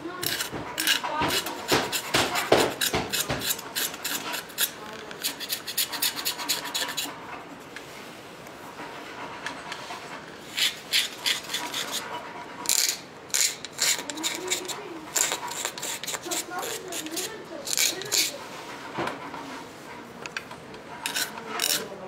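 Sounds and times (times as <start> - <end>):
knife scraping wood: 0.2 - 7.2, 9.7 - 19.0, 20.9 - 22.0.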